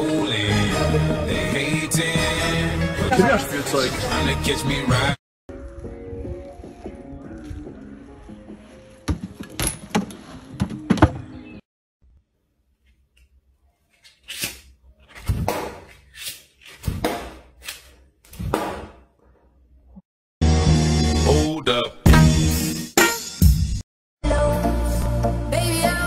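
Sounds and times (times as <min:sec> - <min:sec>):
music: 0:00.0 - 0:09.8, 0:20.4 - 0:26.0.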